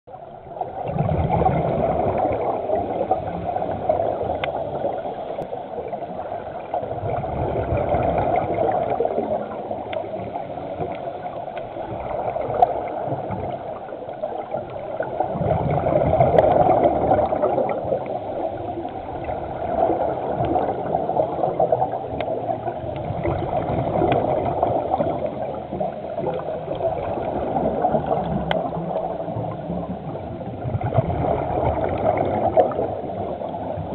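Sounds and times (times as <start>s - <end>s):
muffled underwater wash: 0.1s - 33.9s
scuba exhaust bubbles gurgling: 0.1s - 33.9s
faint clicks: 4.3s - 6.0s, 9.2s - 14.9s, 20.3s - 20.8s, 21.8s - 23.4s, 24.0s - 29.5s.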